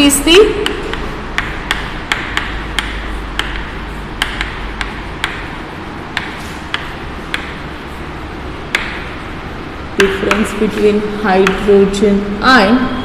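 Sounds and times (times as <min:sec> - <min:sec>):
low room hum: 0:00.0 - 0:13.0
chalk tapping on blackboard: 0:00.6 - 0:08.1, 0:08.7 - 0:09.2, 0:10.0 - 0:12.0.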